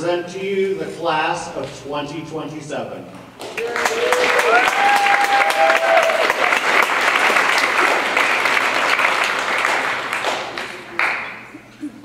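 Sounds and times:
audience applauding: 3.4s - 11.6s.

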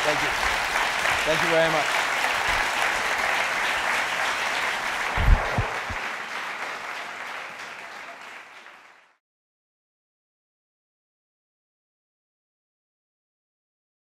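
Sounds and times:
audience applauding: 0.0s - 9.2s
low thumps: 5.2s - 6.0s.

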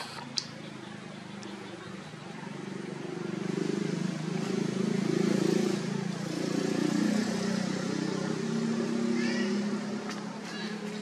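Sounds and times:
engine running: 0.0s - 11.0s.

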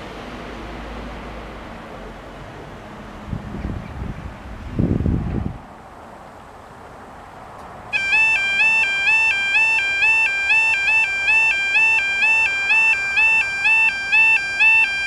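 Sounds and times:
level crossing two-tone alarm: 7.9s - 15.0s.

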